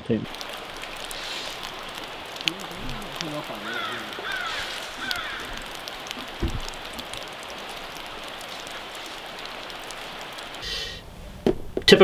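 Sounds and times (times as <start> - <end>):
running water rushing: 0.0 - 12.0
low thump: 6.4 - 6.8.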